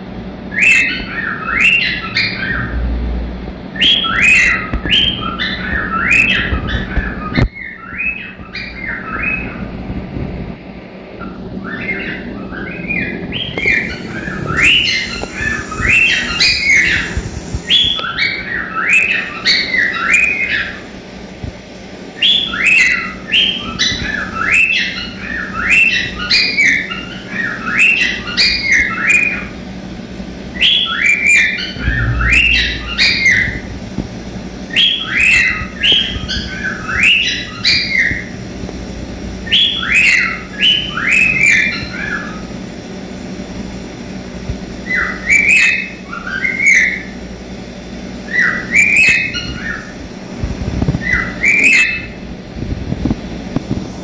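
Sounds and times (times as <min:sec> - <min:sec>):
cockatiel whistling song: 0:12.9 - 0:20.6.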